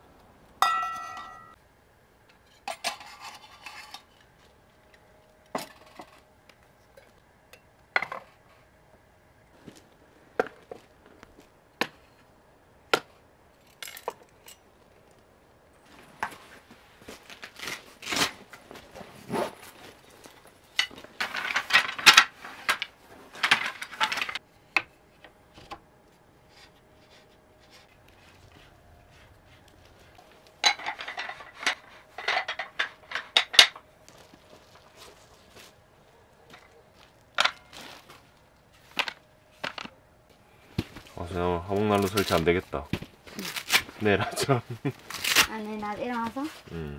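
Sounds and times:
lantern set on wooden shelf: 20.3 - 40.0.

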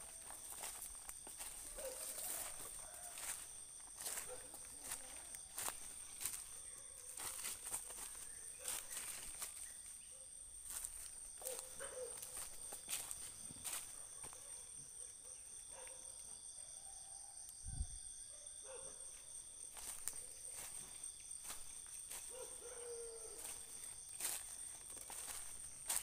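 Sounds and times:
footsteps on dry leaves: 0.0 - 9.8, 10.7 - 14.4, 19.7 - 26.0
night insects chorus: 0.0 - 26.0.

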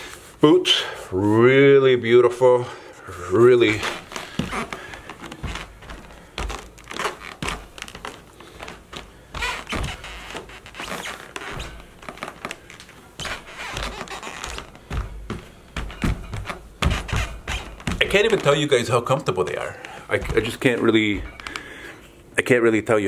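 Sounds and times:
boots stepping on a rug: 3.1 - 18.8, 19.5 - 21.7.

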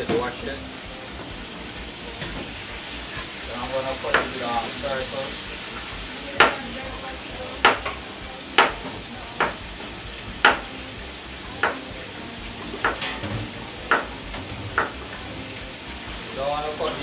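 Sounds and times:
frying sizzle: 0.0 - 17.0
knife chopping potato on board: 7.6 - 7.9, 8.6 - 8.8, 9.4 - 9.6, 10.4 - 10.7, 11.6 - 11.8.

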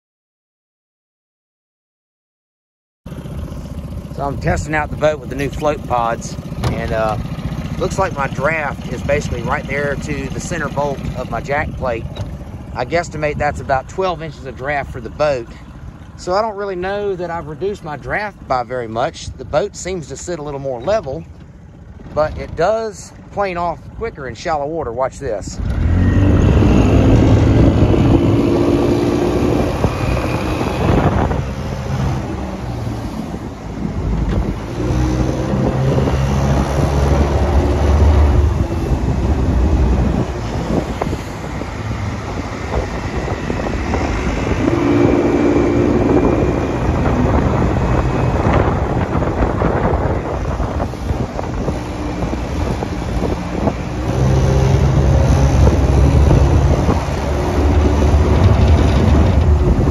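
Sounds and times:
outboard motor running: 3.1 - 59.9
wind buffeting microphone: 25.6 - 59.9.

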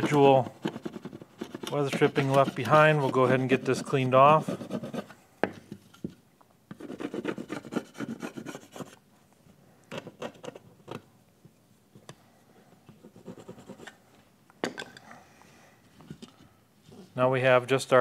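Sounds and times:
plastic stick scraping metal trim: 0.0 - 5.1.

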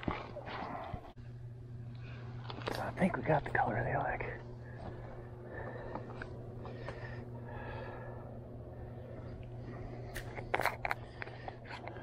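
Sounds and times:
steady low hum: 0.0 - 12.0
person breathing: 4.5 - 12.0.

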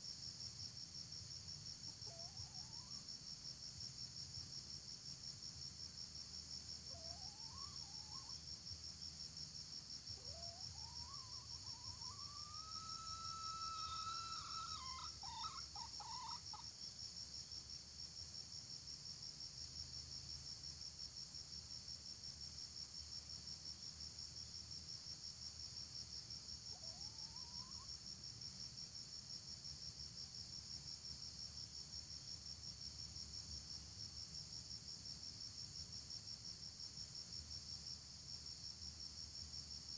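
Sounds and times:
high insect drone: 0.0 - 39.9
rooster crowing: 10.3 - 16.5.

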